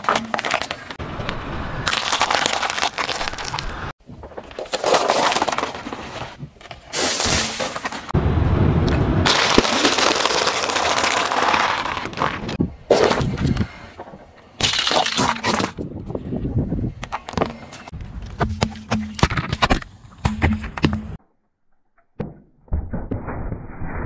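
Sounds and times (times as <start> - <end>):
car tyre crushing objects: 0.0 - 1.0, 1.8 - 8.2, 9.2 - 15.8
drink cans bursting and spraying: 9.3 - 12.5.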